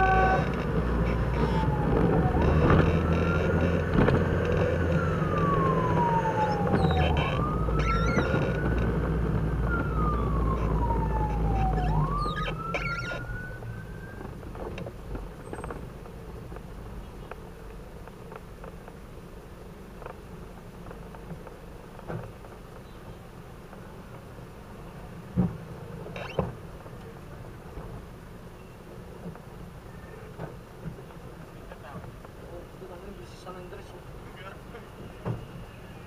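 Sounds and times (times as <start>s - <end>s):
fire truck siren wailing: 0.0s - 14.4s.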